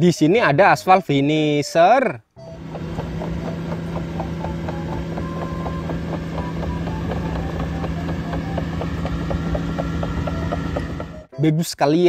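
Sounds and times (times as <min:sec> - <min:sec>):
diesel engine hum: 0:02.4 - 0:11.3
crawler tracks clicking and squeaking: 0:02.4 - 0:11.4.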